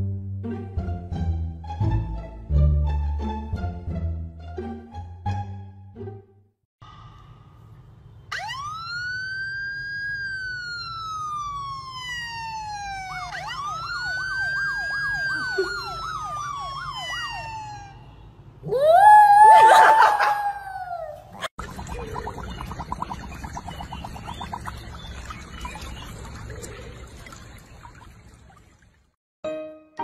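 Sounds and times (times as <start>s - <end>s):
loud rough siren wail: 8.3s - 21.1s
siren wailing: 8.3s - 21.2s.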